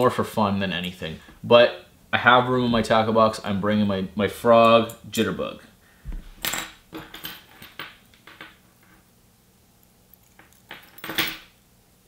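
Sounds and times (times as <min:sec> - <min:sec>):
metal lures clinking on wood: 0:10.1 - 0:11.5.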